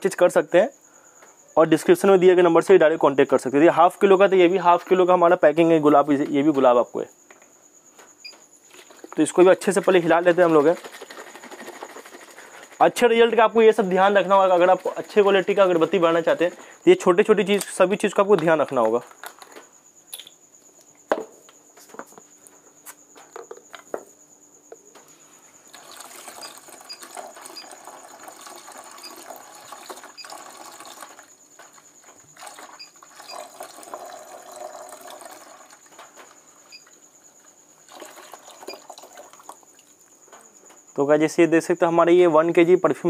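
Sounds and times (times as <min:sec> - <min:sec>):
liquid pouring into plastic bucket: 0:09.7 - 0:12.8, 0:25.7 - 0:36.0, 0:37.8 - 0:39.9.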